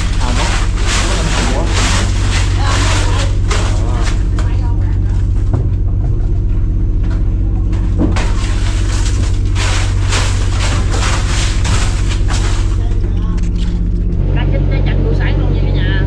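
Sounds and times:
crushed ice pouring and rattling: 0.0s - 4.6s, 8.1s - 13.0s
boat diesel engine drone: 0.0s - 16.0s.

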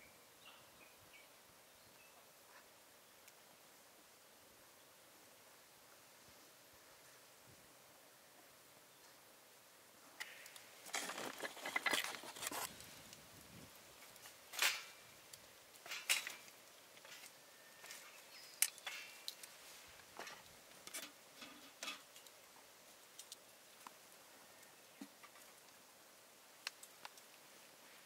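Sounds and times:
small objects clinking and rustling: 10.3s - 12.8s.

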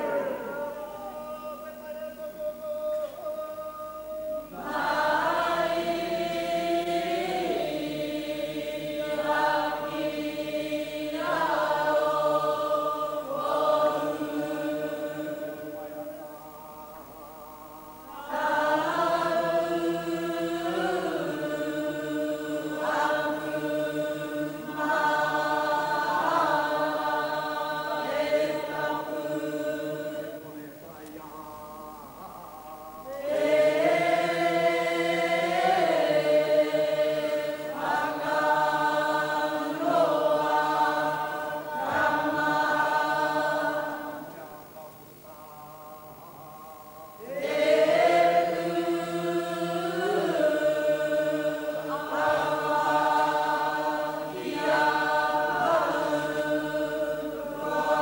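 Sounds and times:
women chanting in unison: 0.0s - 1.5s, 3.4s - 15.8s, 17.9s - 30.4s, 32.9s - 44.3s, 47.1s - 58.0s.

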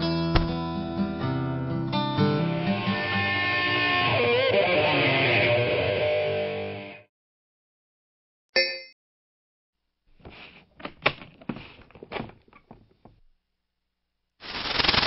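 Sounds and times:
comic knocks and thuds: 0.2s - 0.7s.

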